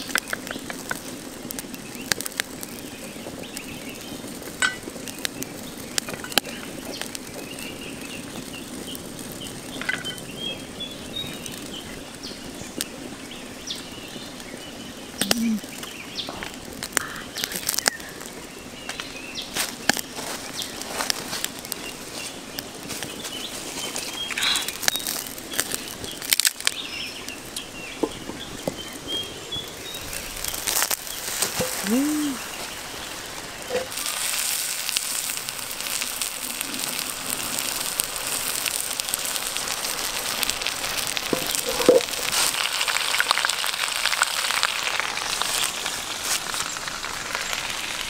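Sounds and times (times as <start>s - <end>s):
small birds chirping: 0.0s - 33.9s
wood fire crackling and popping: 0.0s - 48.0s.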